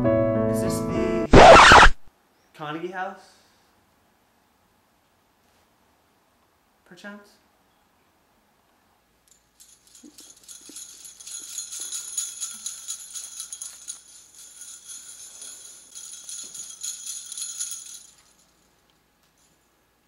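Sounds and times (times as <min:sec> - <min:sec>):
jingle bells shaken: 0:09.3 - 0:19.6.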